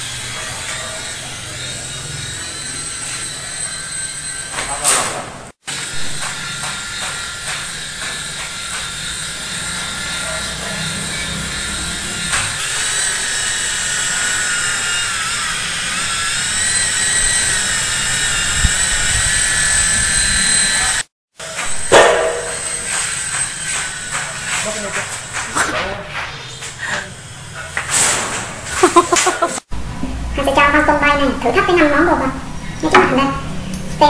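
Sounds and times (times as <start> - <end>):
toy helicopter rotors whining: 0.0 - 4.9, 5.7 - 21.1.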